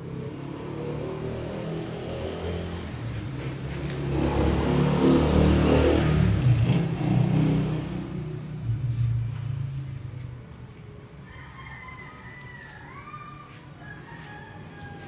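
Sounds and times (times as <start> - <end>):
car engine revving: 0.0 - 9.1.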